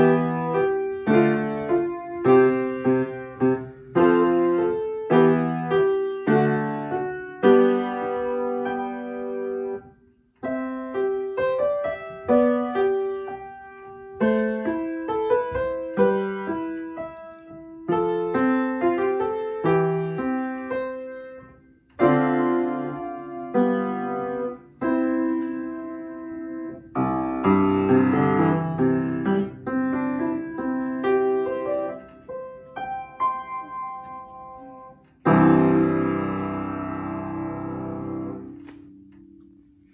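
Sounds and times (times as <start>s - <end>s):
solo piano melody: 0.0s - 39.9s.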